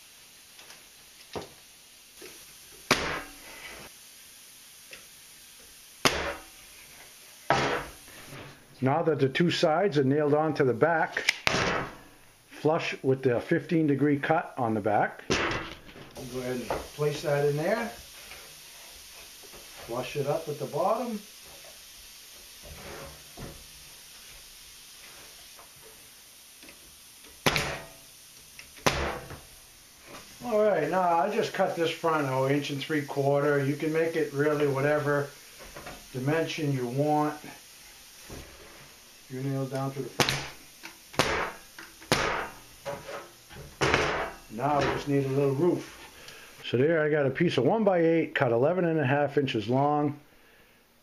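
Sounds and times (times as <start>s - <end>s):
pneumatic nail gun firing: 7.5s - 8.0s, 11.2s - 12.0s, 27.2s - 28.0s, 28.7s - 29.4s, 41.2s - 42.6s.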